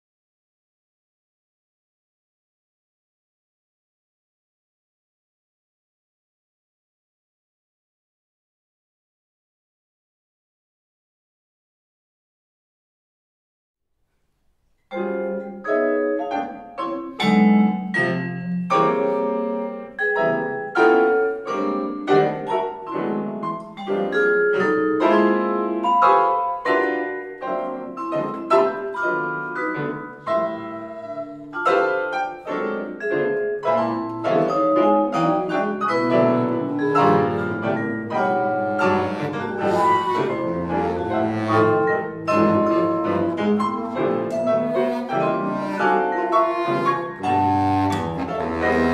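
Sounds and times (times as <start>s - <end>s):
piano: 14.7s - 48.9s
mallet percussion: 14.8s - 48.9s
baritone saxophone: 38.5s - 48.9s
bass flute: 38.8s - 48.9s.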